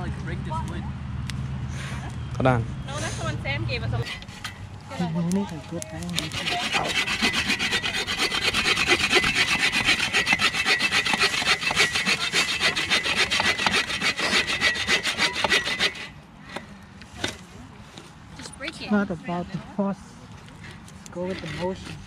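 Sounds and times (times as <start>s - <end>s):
hand saw cutting branch: 6.0s - 17.3s, 20.6s - 22.0s.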